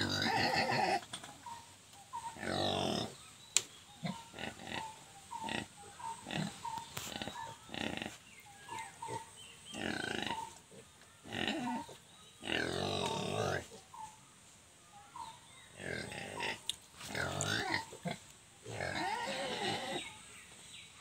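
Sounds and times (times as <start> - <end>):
pigs grunting: 0.0 - 1.2, 2.2 - 3.2, 4.0 - 13.8, 15.7 - 20.1.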